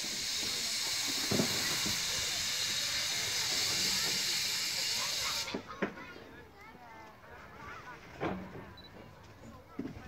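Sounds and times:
steam locomotive hissing steam: 0.0s - 5.8s.

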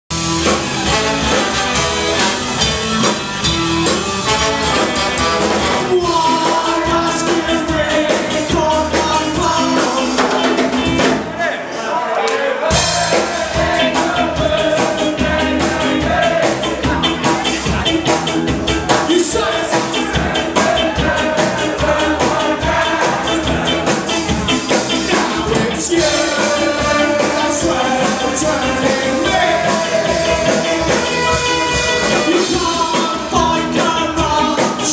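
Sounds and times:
electric guitar: 0.1s - 11.1s, 12.7s - 34.9s
drum kit: 0.1s - 11.5s, 12.5s - 34.9s
saxophone: 0.2s - 6.3s, 29.4s - 32.5s
trombone: 0.2s - 8.4s, 25.1s - 33.0s.

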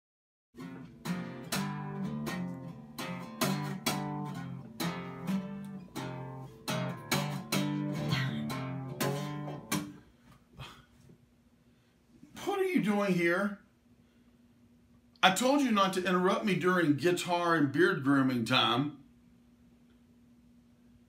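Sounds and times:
acoustic guitar plucked chords: 0.6s - 10.0s.

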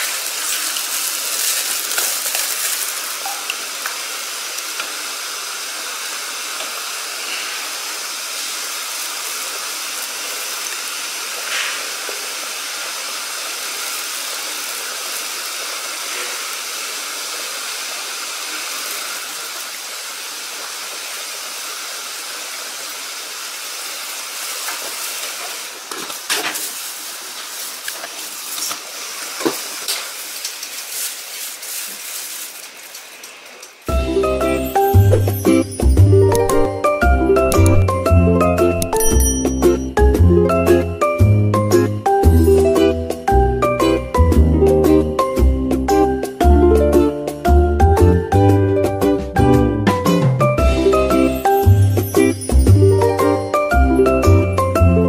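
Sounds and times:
steam hissing from steamer pot: 4.0s - 33.6s.

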